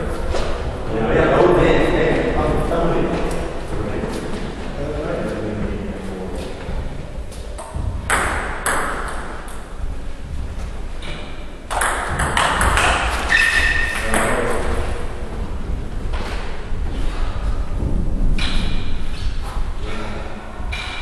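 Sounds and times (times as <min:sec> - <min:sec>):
table tennis ball hits: 0:07.6 - 0:09.7, 0:11.1 - 0:14.8
short high squeak: 0:13.3 - 0:14.0.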